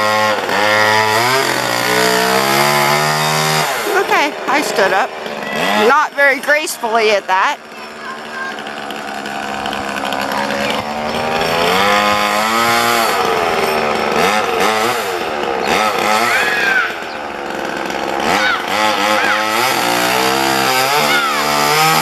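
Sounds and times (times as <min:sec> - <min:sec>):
chainsaw cutting wood: 0:00.0 - 0:22.0.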